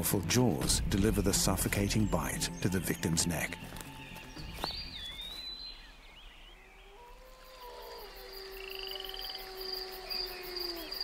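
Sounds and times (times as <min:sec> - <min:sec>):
frogs calling: 0:06.6 - 0:11.0.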